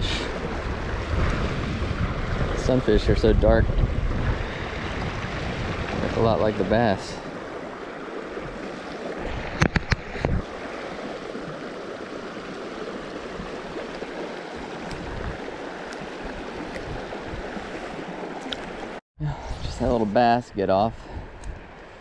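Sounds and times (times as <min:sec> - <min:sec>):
river rushing over stones: 0:05.2 - 0:19.0.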